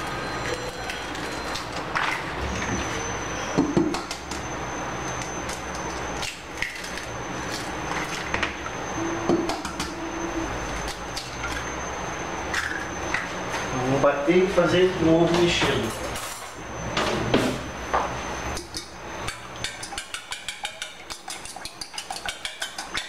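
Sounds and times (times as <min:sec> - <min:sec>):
steady background noise: 0:00.0 - 0:23.0
eggs cracking on metal bowl: 0:19.3 - 0:23.0.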